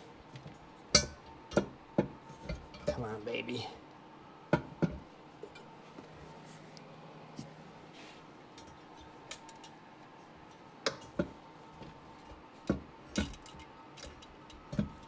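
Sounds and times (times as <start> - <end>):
clicks and knocks of hard parts: 10.9 - 15.0.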